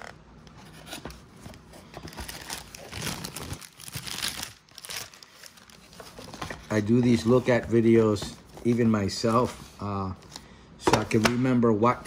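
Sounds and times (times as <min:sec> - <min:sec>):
plastic packaging crinkling: 0:01.5 - 0:07.6.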